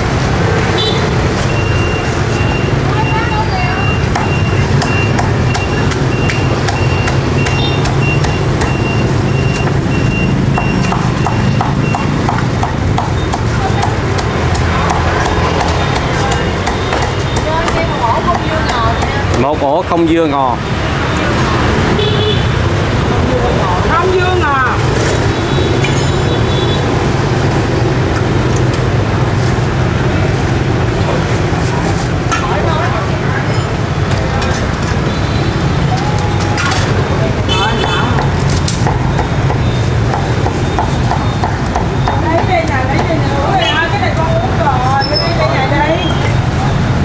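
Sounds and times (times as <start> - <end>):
street traffic rumble: 0.0 - 47.0
repeating high electronic beep: 1.5 - 12.1.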